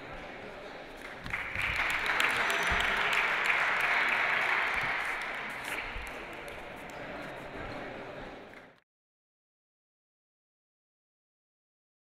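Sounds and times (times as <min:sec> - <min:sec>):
spectators applauding: 0:01.2 - 0:07.0.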